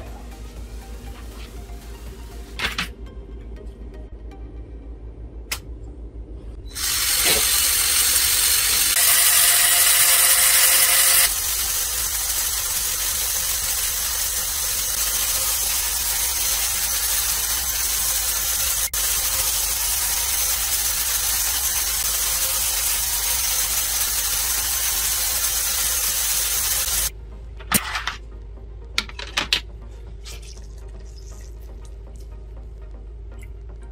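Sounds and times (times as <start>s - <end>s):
motors and gears whirring: 6.5s - 27.1s.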